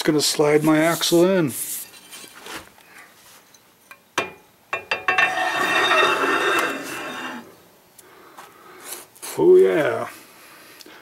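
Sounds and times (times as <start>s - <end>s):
metallic scraping and rattling: 4.8s - 7.5s.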